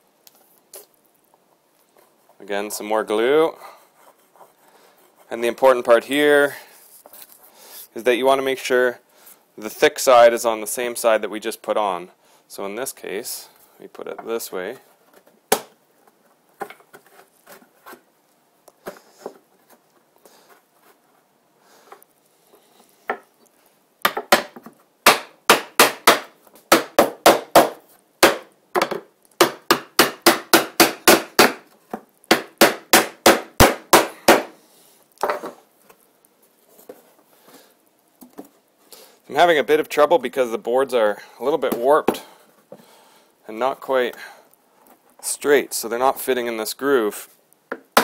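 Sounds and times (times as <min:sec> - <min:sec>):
hammer tapping wood: 0:24.0 - 0:31.6, 0:32.3 - 0:34.5.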